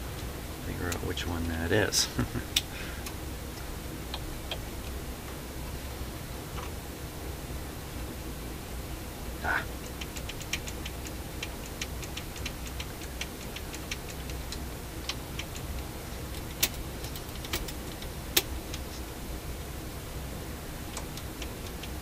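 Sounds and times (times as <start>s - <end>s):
turntable mechanism clicking: 20.9s - 22.0s.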